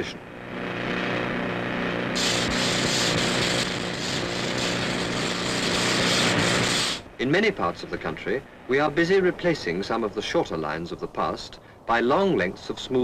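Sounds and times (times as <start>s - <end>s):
engine humming: 0.0s - 10.7s
tamping tines squeezing into stone: 2.2s - 7.0s.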